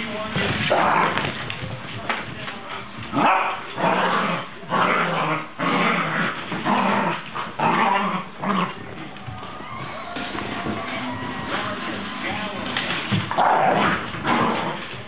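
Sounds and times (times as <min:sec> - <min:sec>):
dogs growling in play: 0:00.5 - 0:01.5, 0:03.1 - 0:09.1, 0:12.6 - 0:15.0.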